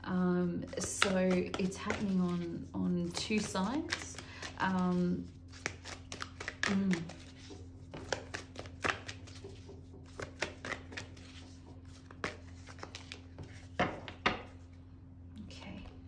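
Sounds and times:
cards slapping: 0.7 - 2.5, 3.1 - 4.8, 5.5 - 14.5
cards being shuffled: 0.7 - 14.6.

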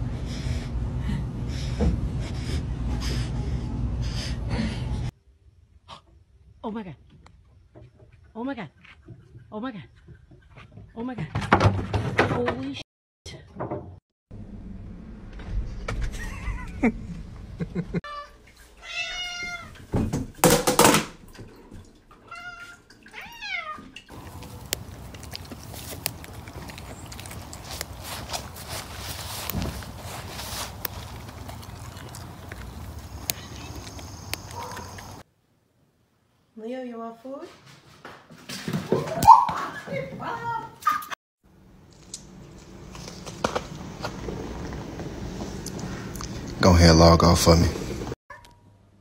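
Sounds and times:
rapid noisy breathing: 0.0 - 5.1
cats meowing: 18.1 - 19.8, 22.2 - 24.0.

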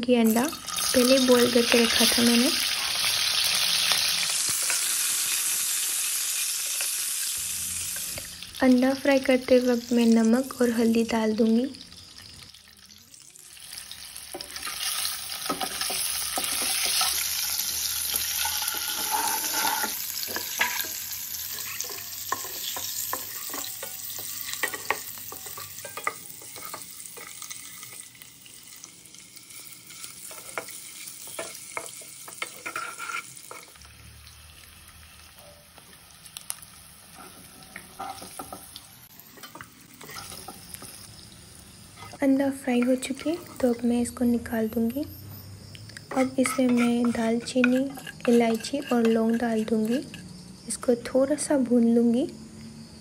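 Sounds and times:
eggs sizzling in hot oil: 0.0 - 45.1, 45.7 - 50.7
spatula knocking and scraping pan: 14.3 - 28.0, 30.2 - 33.8, 37.1 - 38.8, 39.4 - 41.0, 46.1 - 50.2.

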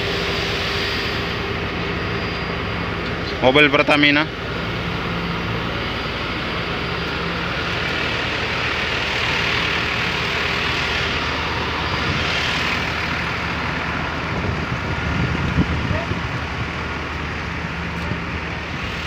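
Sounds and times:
hiss: 0.0 - 1.6
engine drone: 0.0 - 19.0.

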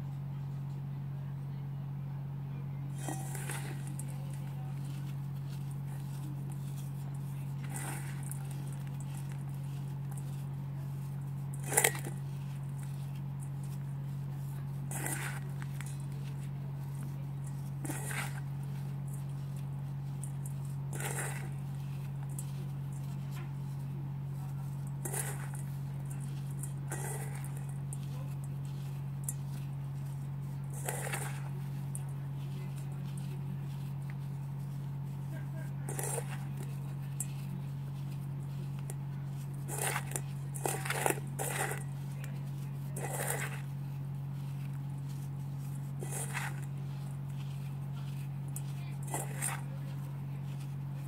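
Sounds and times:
steady low hum: 0.0 - 51.0
fingers crumbling dry foam: 1.8 - 51.0
hand crushing wet paste: 2.8 - 51.0.

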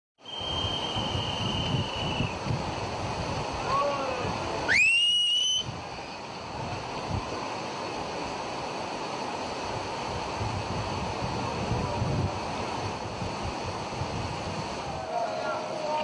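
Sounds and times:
loud rising whistle: 0.2 - 2.4, 4.7 - 5.7
thin high whistle tone: 0.2 - 2.4, 4.7 - 5.7
river torrent rushing: 0.2 - 16.0.

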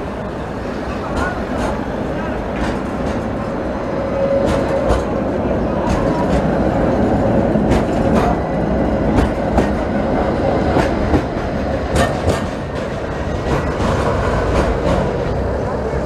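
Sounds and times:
tram wheels rumbling: 0.0 - 16.0
wheels clicking over rail joints: 10.7 - 15.3.

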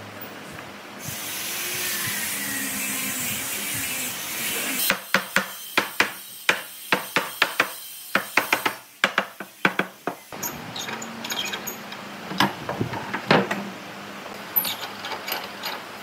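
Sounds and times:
steady hiss: 0.6 - 10.5.

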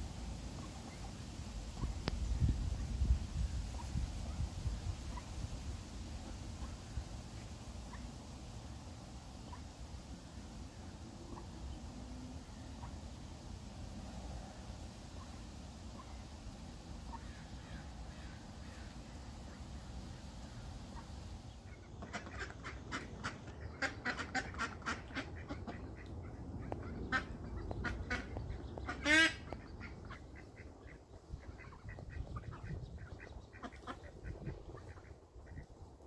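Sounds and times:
ducklings peeping: 0.5 - 5.3, 6.2 - 8.1, 17.0 - 35.7
loud duck quack: 21.7 - 35.6.

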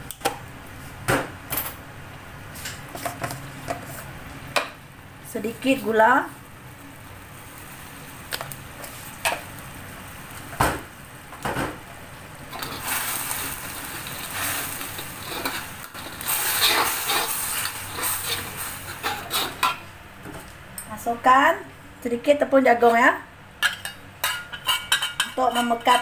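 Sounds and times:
metal spatula scraping wok: 12.5 - 19.8, 22.8 - 26.0.

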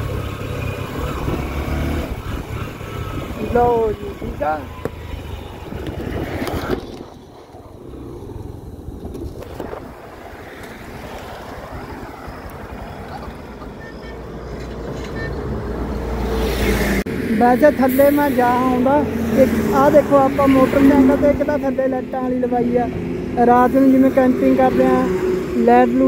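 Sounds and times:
road vehicle wind rumble: 0.0 - 26.0.

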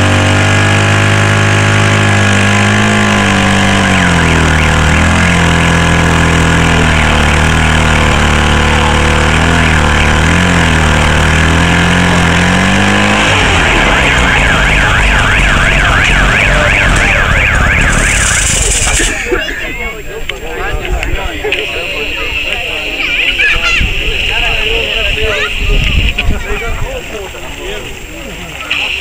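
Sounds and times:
pump engine running hard: 0.0 - 19.2
warbling electronic siren: 3.1 - 19.2.

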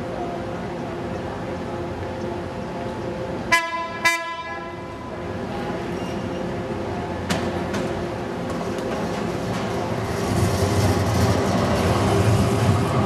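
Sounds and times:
rumble of approaching rail car: 0.0 - 13.0
trolley horn toots: 3.5 - 4.9.

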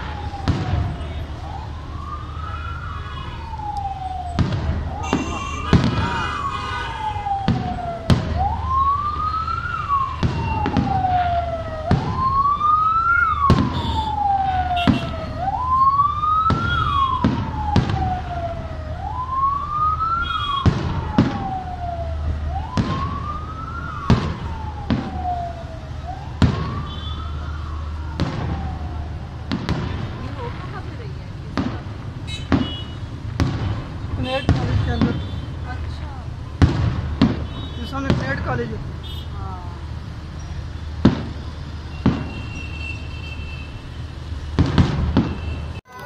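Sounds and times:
fireworks banging: 0.0 - 1.6, 3.6 - 40.0, 40.6 - 46.0
siren wailing: 0.0 - 31.8.

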